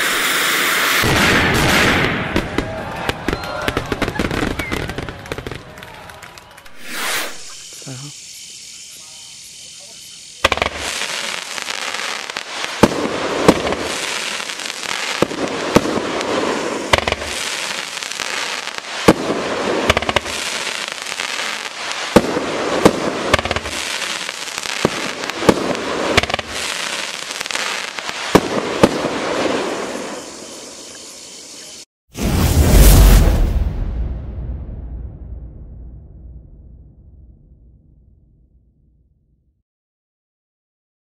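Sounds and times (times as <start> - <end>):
fireworks fizzing hiss: 0.0 - 5.6, 6.6 - 33.5
firework bangs: 0.0 - 7.7, 10.2 - 37.8.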